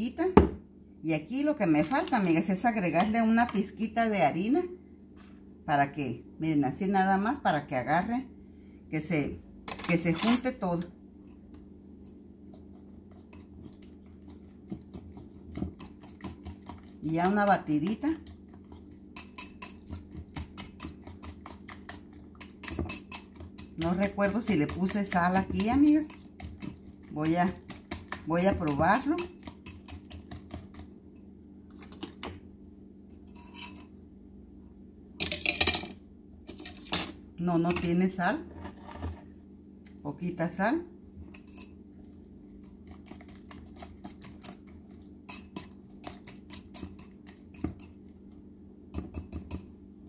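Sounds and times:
steady low hum: 0:00.0 - 0:50.0
whisk clicking against bowl: 0:14.6 - 0:30.9.

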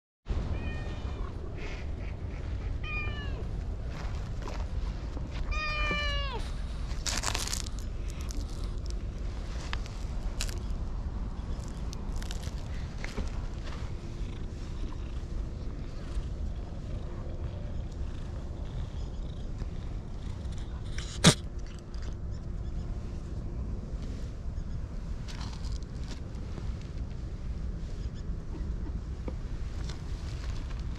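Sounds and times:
steady low rumble: 0:00.3 - 0:30.9
cat meowing: 0:00.5 - 0:01.3, 0:02.8 - 0:03.5, 0:05.5 - 0:06.4
cat purring: 0:13.5 - 0:21.4.

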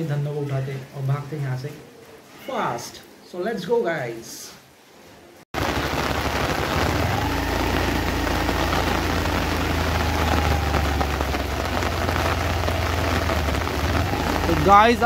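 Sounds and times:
heavy rain on concrete: 0:05.6 - 0:15.0
low steady rumble: 0:06.2 - 0:15.0.

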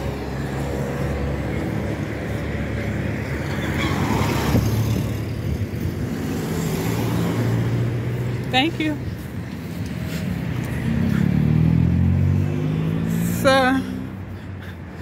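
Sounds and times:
minibus passing by: 0:00.0 - 0:15.0
traffic engine drone: 0:00.0 - 0:15.0.

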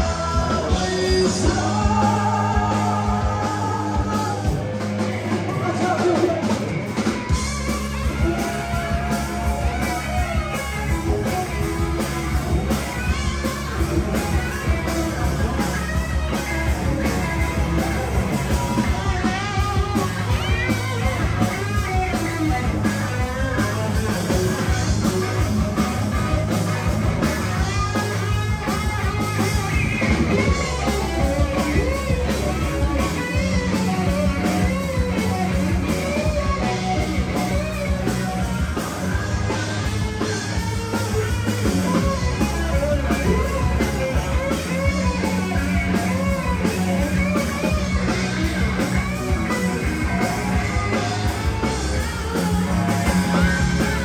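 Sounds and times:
person singing: 0:00.0 - 0:06.6
bass line: 0:00.0 - 0:54.0
electric guitar: 0:00.0 - 0:54.0.

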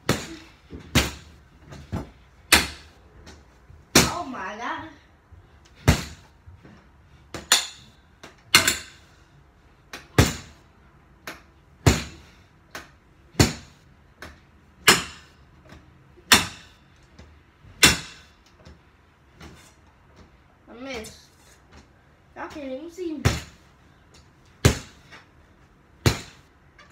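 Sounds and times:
stick whacking punching bag: 0:00.0 - 0:04.4, 0:05.7 - 0:06.4, 0:07.3 - 0:09.1, 0:09.9 - 0:15.4, 0:16.2 - 0:16.8, 0:17.8 - 0:18.4, 0:23.2 - 0:23.6, 0:24.6 - 0:25.2, 0:26.0 - 0:26.5.

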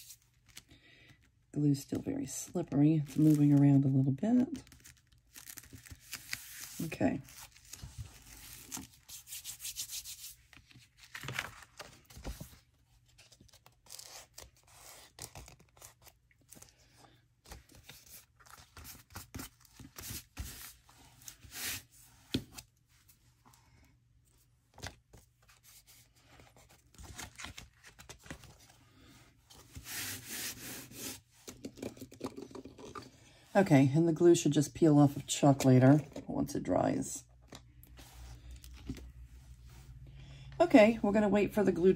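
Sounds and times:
paper rustling by hand: 0:02.8 - 0:22.6, 0:24.7 - 0:31.6.

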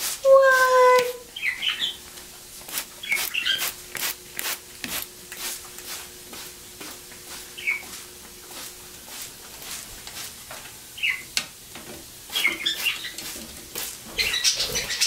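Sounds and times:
voice saying what: 0:00.2 - 0:01.2.

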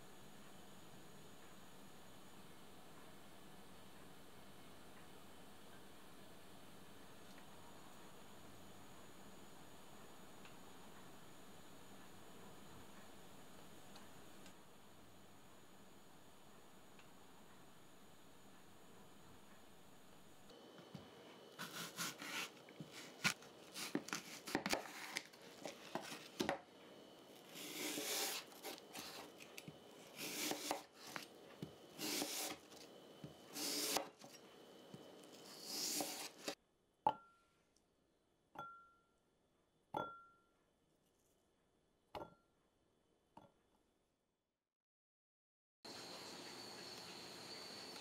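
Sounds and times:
knife crunching through apple: 0:21.6 - 0:26.6, 0:27.4 - 0:31.3, 0:31.9 - 0:32.9, 0:33.5 - 0:34.4, 0:35.2 - 0:36.6.

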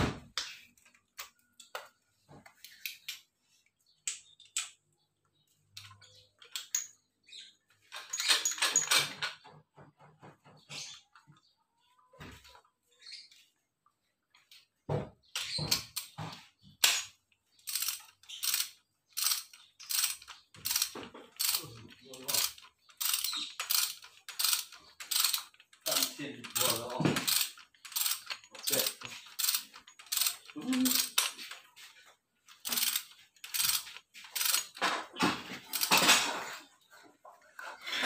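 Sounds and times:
ratchet wrench clicking: 0:17.6 - 0:21.6, 0:22.3 - 0:31.4, 0:32.5 - 0:34.8.

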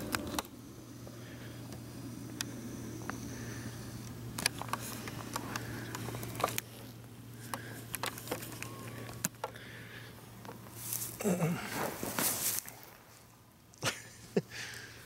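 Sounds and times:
steady low hum: 0:00.0 - 0:15.0
handling noise in grass: 0:10.4 - 0:13.4.

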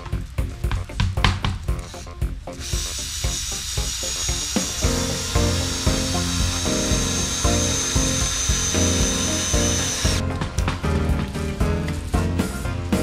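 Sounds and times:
music with steady beat: 0:00.0 - 0:13.0
cordless drill whining: 0:01.9 - 0:10.2.

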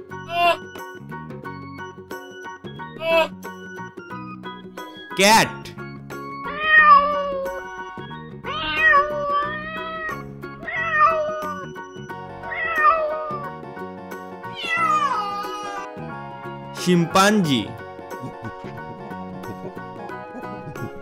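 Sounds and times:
soft background music: 0:00.0 - 0:21.0
cat meowing: 0:06.5 - 0:07.8, 0:08.4 - 0:11.6, 0:12.4 - 0:13.5, 0:14.4 - 0:15.9.

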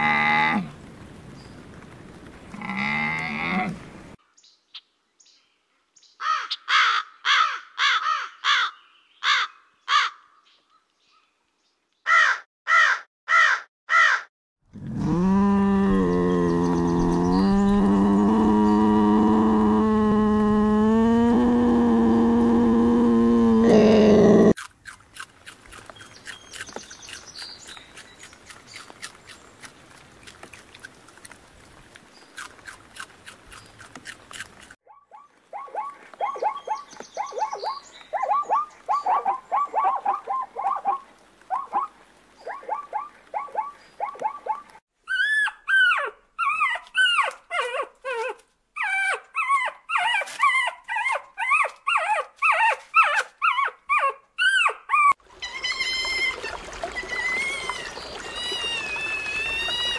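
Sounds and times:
high animal yelping: 0:42.5 - 0:59.9.

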